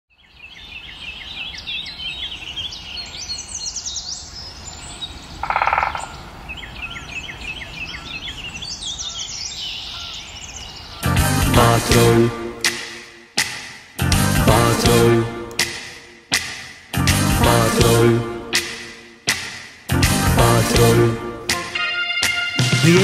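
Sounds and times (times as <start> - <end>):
birds singing and chirping: 0.1 - 11.1.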